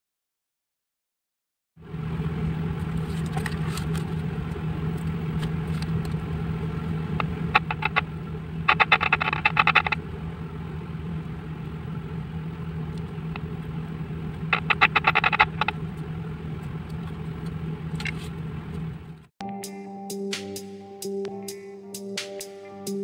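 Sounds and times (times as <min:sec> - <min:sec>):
low hum: 0:01.8 - 0:23.0
loudspeaker clicking and crackling: 0:07.2 - 0:10.1, 0:14.3 - 0:16.1.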